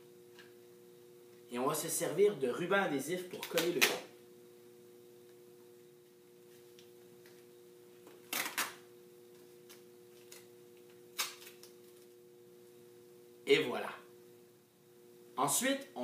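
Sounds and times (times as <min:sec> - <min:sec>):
duct tape ripping: 0:08.3 - 0:08.8, 0:11.1 - 0:11.8.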